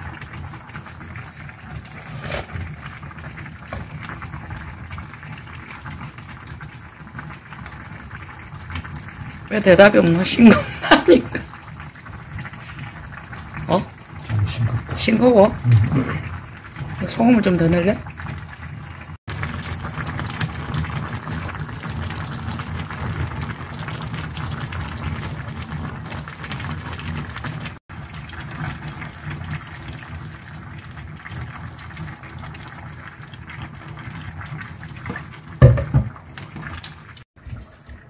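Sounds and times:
stew bubbling in pot: 0:00.0 - 0:38.0
loud thump: 0:35.6 - 0:36.1.

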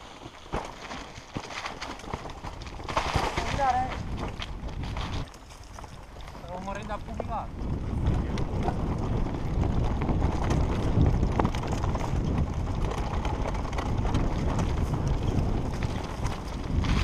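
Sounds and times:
wind buffeting on microphone: 0:01.3 - 0:17.0
motorcycle engine: 0:07.8 - 0:17.0.

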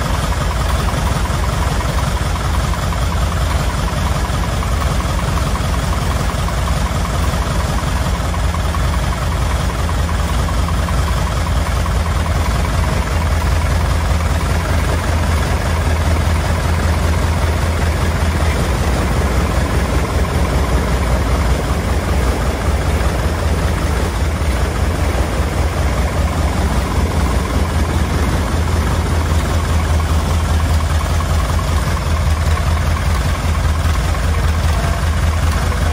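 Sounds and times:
light aircraft engine running: 0:00.0 - 0:35.9.

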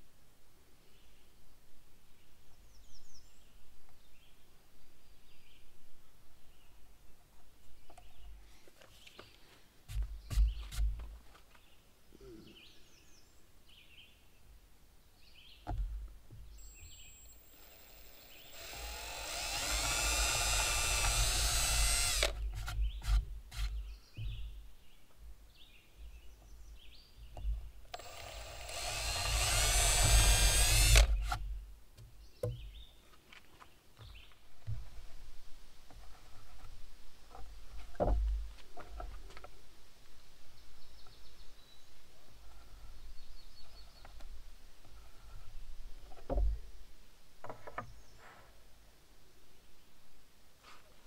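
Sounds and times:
faint birdsong: 0:00.6 - 0:51.0
cordless drill motor whine: 0:16.6 - 0:22.4, 0:27.9 - 0:31.4.

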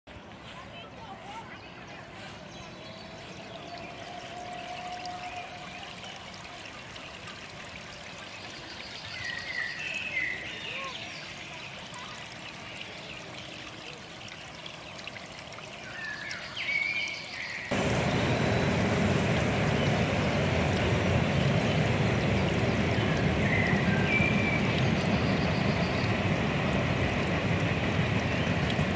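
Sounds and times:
rushing water noise: 0:00.2 - 0:28.9
bird chirps: 0:15.9 - 0:28.8.

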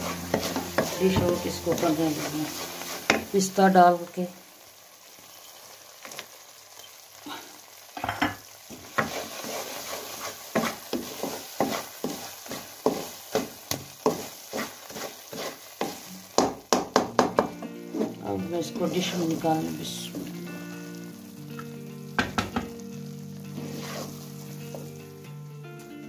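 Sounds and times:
wooden spatula scraping metal pan: 0:00.0 - 0:03.4, 0:08.8 - 0:16.1, 0:17.9 - 0:20.2, 0:23.6 - 0:24.9
faint sizzle: 0:00.0 - 0:26.0.

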